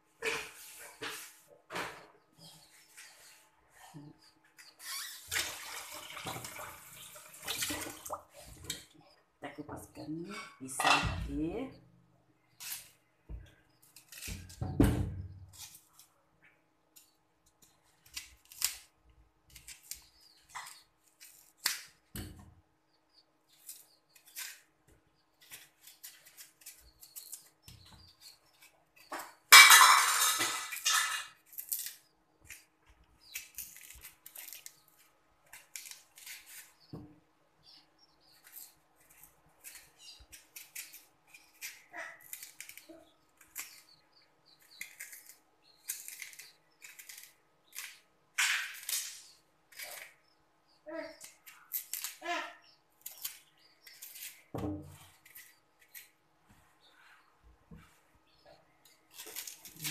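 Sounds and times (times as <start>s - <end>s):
knife scraping banana peel: 13.8s - 14.6s, 18.0s - 18.9s, 38.4s - 48.0s.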